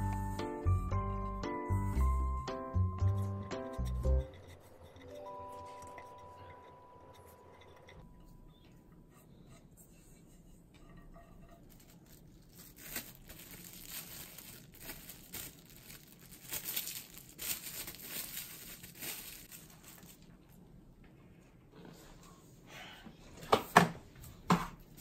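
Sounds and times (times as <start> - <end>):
plastic cling wrap crinkling: 11.4 - 20.5.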